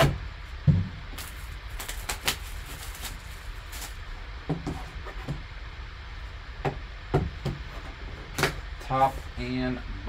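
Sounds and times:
plastic shrink wrap crinkling: 1.2s - 4.1s.

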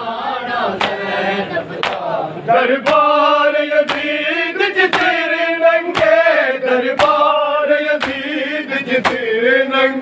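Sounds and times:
men chanting in chorus: 0.0s - 10.0s
chest-beating slaps: 8.0s - 8.3s.

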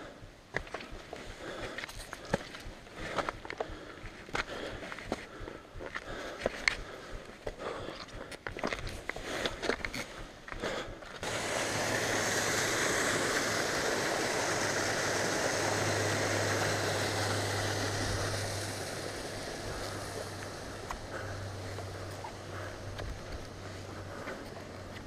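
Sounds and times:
mountain stream rushing over rocks: 11.2s - 25.0s.

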